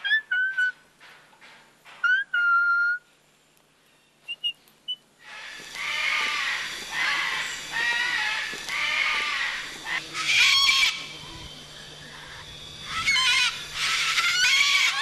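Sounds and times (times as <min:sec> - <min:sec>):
cockatoo screeching: 0:05.2 - 0:11.2, 0:12.1 - 0:15.0.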